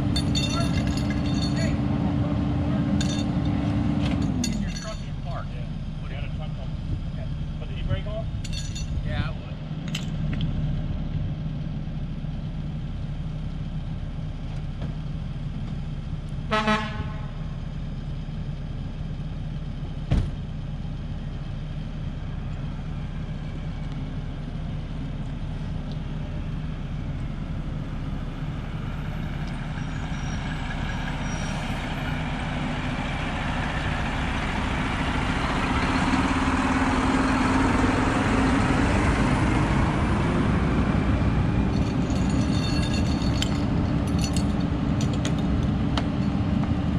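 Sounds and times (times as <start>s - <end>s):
truck passing close by: 0.0s - 6.0s, 16.4s - 46.9s
diesel engine idling: 0.0s - 46.9s
vehicle horn toot: 16.5s - 17.4s.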